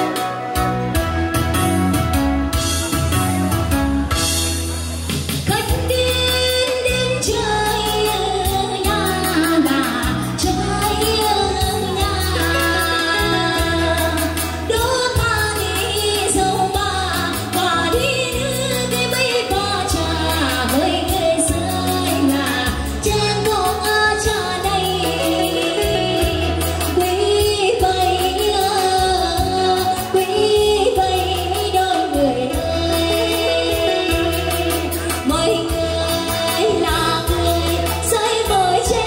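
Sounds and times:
instrumental accompaniment with bass: 0.0 - 39.0
person singing: 5.5 - 39.0.

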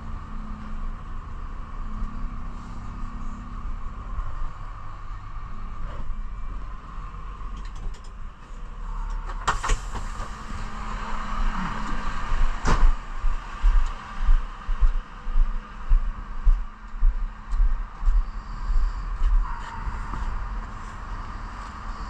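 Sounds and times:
diesel truck engine idling: 8.6 - 14.7.

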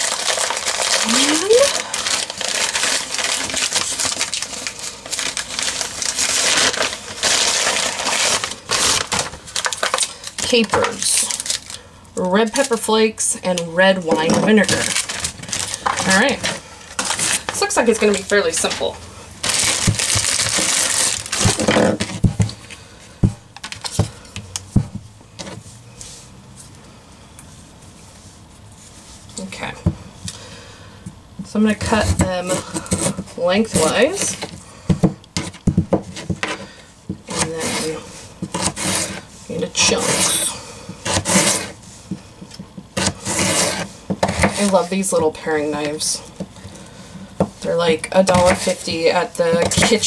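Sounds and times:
paper bag rustling: 0.0 - 11.8, 14.5 - 22.3.

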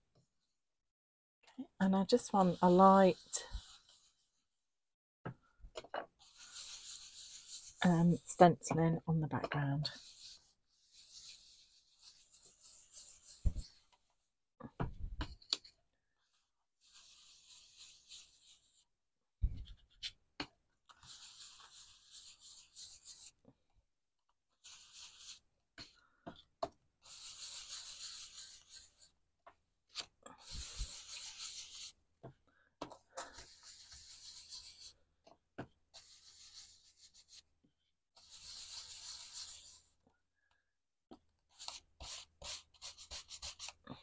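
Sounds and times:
scratchy rubbing on a stencil: 2.4 - 4.4, 6.2 - 8.3, 9.9 - 13.8, 16.8 - 18.8, 21.0 - 23.3, 24.6 - 25.9, 27.0 - 29.1, 30.4 - 32.0, 33.3 - 35.0, 35.9 - 37.4, 38.2 - 39.9, 41.5 - 43.8.

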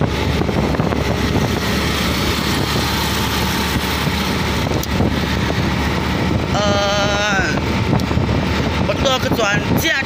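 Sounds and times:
vehicle road and engine noise: 0.0 - 10.0.

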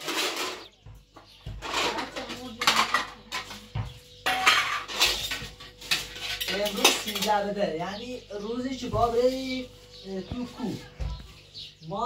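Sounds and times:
plates and metal pot clattering: 0.0 - 7.6.

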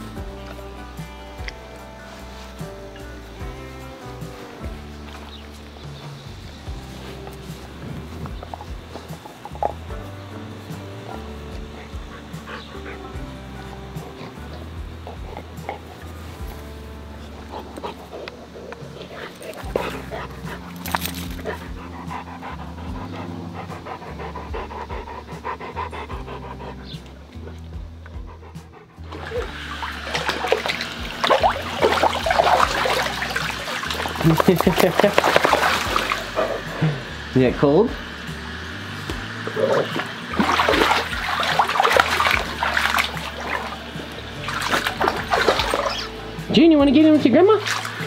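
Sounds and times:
dog panting: 6.7 - 16.6, 17.2 - 37.2, 39.0 - 46.3
dog splashing in water: 19.1 - 21.8, 29.1 - 37.2, 39.0 - 48.0.

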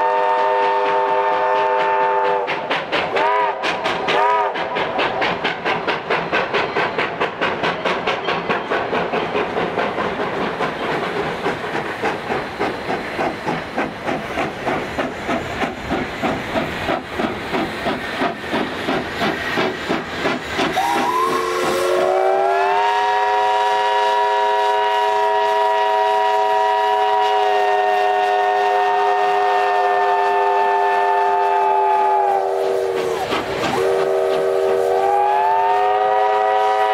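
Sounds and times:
steam locomotive exhaust chuffing: 0.0 - 36.9
chime steam whistle: 20.7 - 36.9.

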